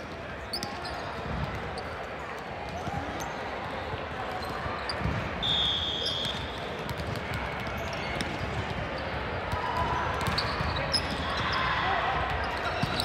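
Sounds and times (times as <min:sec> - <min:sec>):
referee's whistle: 0:05.4 - 0:06.8.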